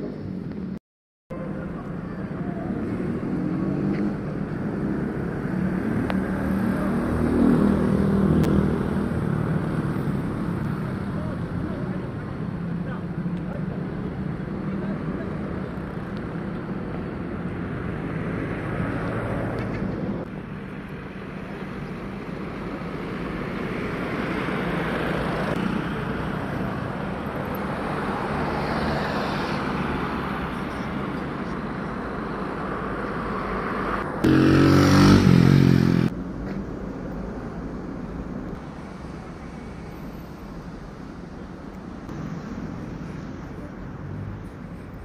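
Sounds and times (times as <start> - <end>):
cars passing: 0.0 - 45.0
motorcycles passing: 1.8 - 12.2, 21.1 - 36.3.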